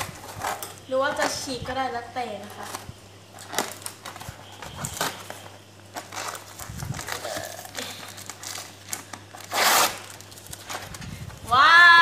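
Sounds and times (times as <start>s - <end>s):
packing tape scraping rustle: 0.0s - 1.6s, 2.3s - 12.0s
cardboard box crinkling: 3.4s - 11.4s.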